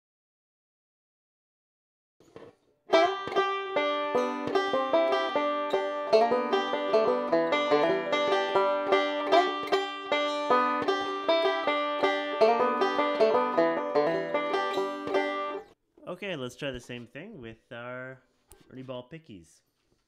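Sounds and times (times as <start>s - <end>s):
banjo fingerpicked notes: 2.4s - 15.8s.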